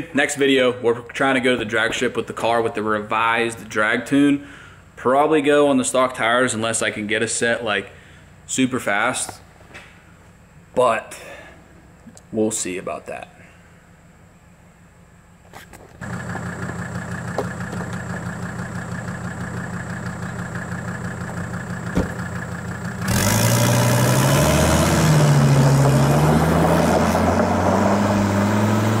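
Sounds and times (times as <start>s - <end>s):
tyres on gravel: 15.4s - 28.2s
car engine idling and revving: 15.9s - 29.0s.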